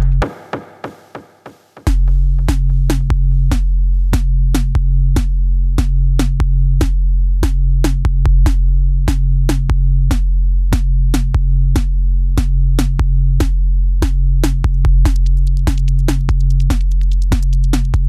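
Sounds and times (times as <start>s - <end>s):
deep held bass: 0.0s - 0.2s, 2.0s - 18.0s
drum machine clicking beat: 0.0s - 3.6s, 12.8s - 18.0s.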